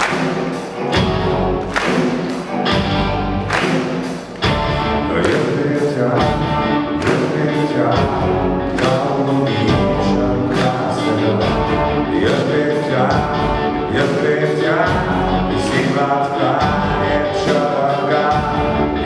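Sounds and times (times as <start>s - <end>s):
drum kit beat: 0.0s - 19.0s
electric bass: 0.0s - 19.0s
electric guitars: 0.0s - 19.0s
man singing into microphone: 5.0s - 19.0s.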